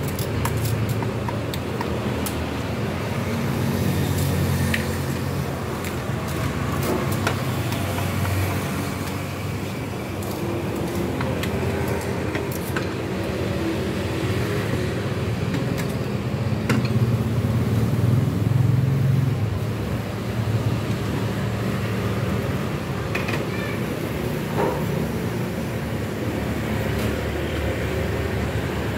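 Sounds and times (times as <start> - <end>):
roadside traffic: 0.0 - 28.9.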